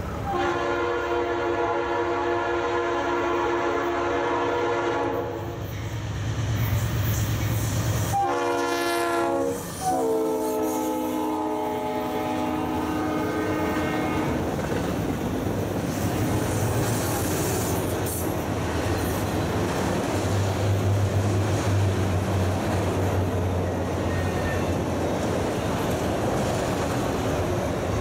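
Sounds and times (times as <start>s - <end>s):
diesel locomotive passing: 0.0s - 28.0s
train air horn blasts: 0.2s - 5.6s, 8.1s - 14.5s
train wheels rumbling and clattering: 5.5s - 8.2s, 12.6s - 28.0s.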